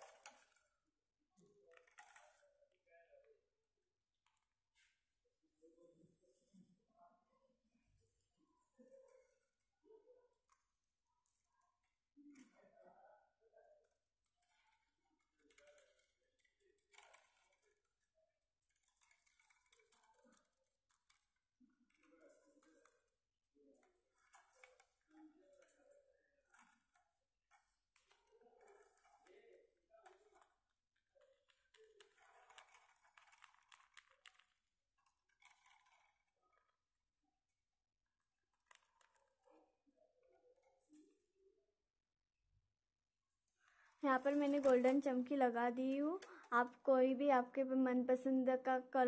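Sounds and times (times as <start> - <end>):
glitter rustling and ticking on paper: 0.0 - 6.8, 7.4 - 41.4, 43.4 - 48.8
plastic bottle rustles and clicks: 43.6 - 45.3.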